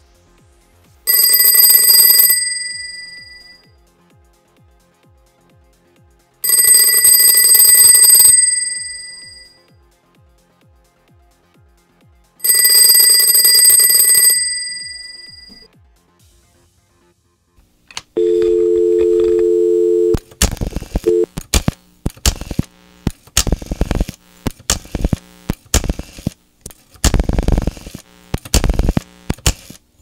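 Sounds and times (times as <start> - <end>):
telephone bell ringing: 1.1 - 3.7, 6.4 - 9.7, 12.4 - 15.7, 18.2 - 20.2.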